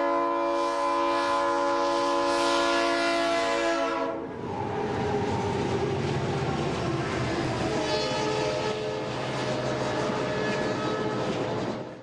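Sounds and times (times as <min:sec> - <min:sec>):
train horn chord: 0:00.0 - 0:04.3, 0:07.6 - 0:11.5
train rumbling and rattling: 0:01.2 - 0:12.0.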